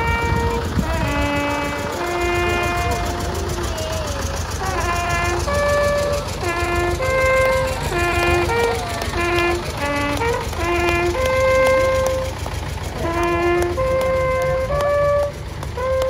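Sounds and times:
long horn playing slow melody: 0.0s - 16.0s
tractor engine running: 0.0s - 16.0s.

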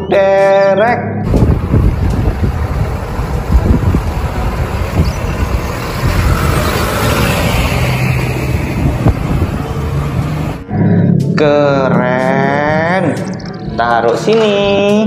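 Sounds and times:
passing street traffic: 1.2s - 15.0s
tow truck engine rumble: 1.3s - 10.7s.

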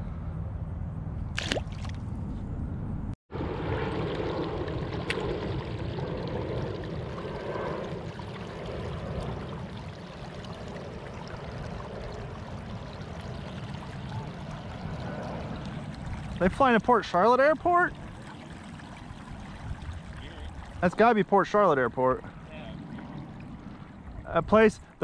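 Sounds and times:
low rumble: 0.0s - 17.1s
water splashing along kayak hull: 17.4s - 21.1s.

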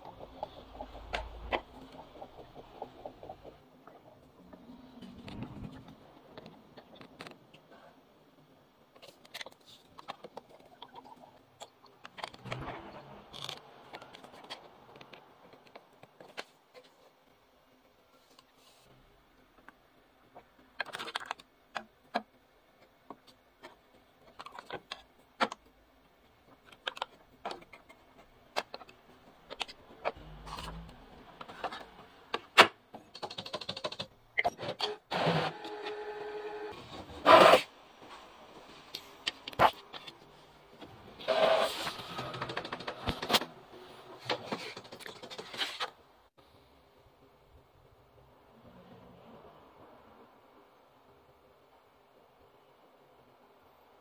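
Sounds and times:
printer whirring: 35.1s - 36.7s, 41.2s - 42.8s.

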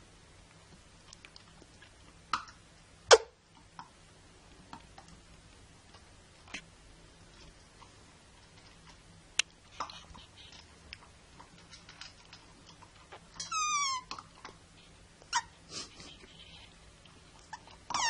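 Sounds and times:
dog crunching kibble in metal bowl: 10.5s - 14.6s
dog whining: 13.4s - 14.2s, 15.3s - 16.7s, 17.5s - 18.0s.

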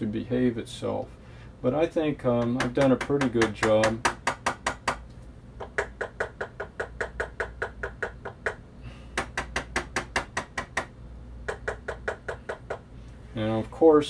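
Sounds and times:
knuckles rapping on plastic cover: 2.4s - 5.0s.

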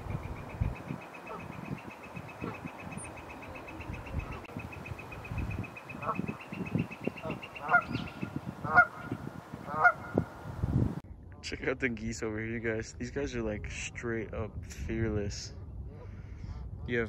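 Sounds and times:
geese honking: 0.0s - 10.3s.

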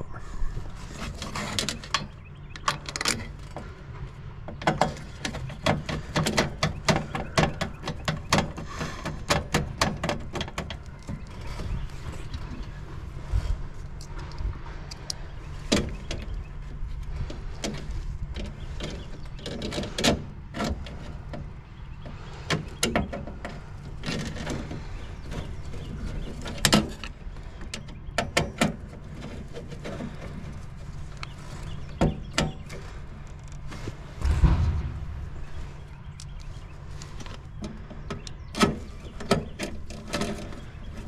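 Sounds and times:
clicks and knocks of hand work: 4.5s - 11.8s
steady low hum: 29.8s - 39.1s
heavy thump: 34.2s - 36.4s.

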